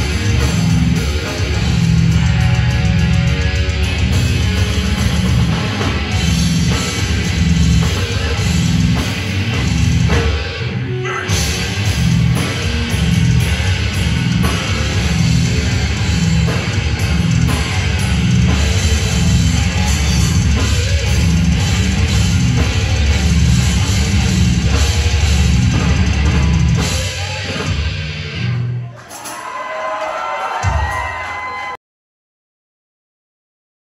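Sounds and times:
death metal band playing live: 0.0s - 29.7s.

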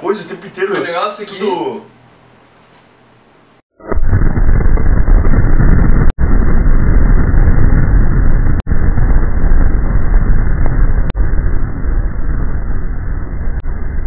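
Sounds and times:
muffled explosion rumbling: 3.8s - 14.0s.

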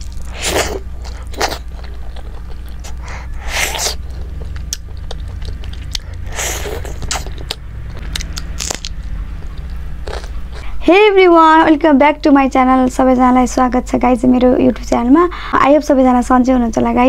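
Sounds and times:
close chewing: 0.0s - 10.7s
steady low hum: 0.0s - 17.0s
wet mouth clicks: 0.2s - 10.7s.

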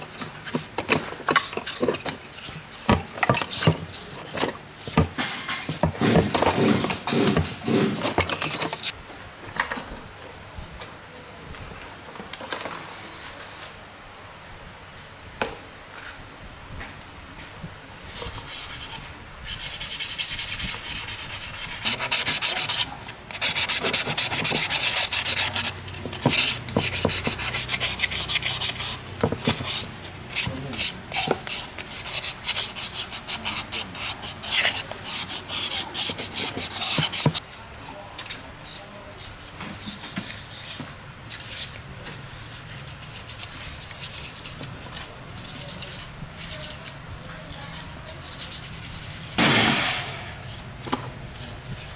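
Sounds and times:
hand sanding strokes: 3.9s - 8.2s, 18.2s - 38.0s, 42.3s - 44.8s, 47.6s - 51.9s.

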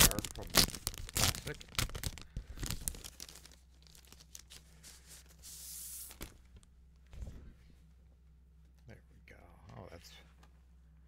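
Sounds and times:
plastic sleeve crinkling: 0.0s - 6.3s.

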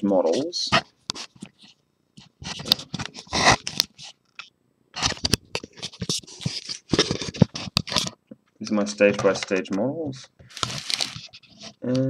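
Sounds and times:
fingers scraping camera body: 1.1s - 4.2s, 5.0s - 8.2s.

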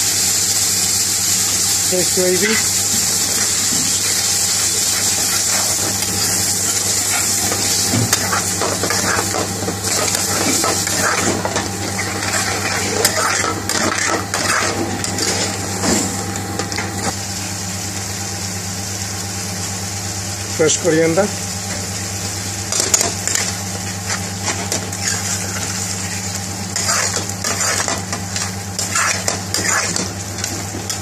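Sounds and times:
steady background hum: 0.0s - 31.0s
spoon stirring and scraping pan: 3.3s - 16.0s, 22.7s - 31.0s.

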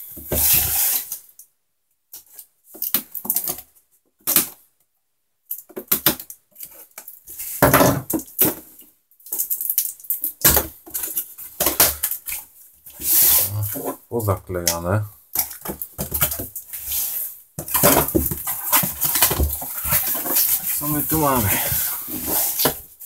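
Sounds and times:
cardboard box being opened: 18.0s - 22.8s.

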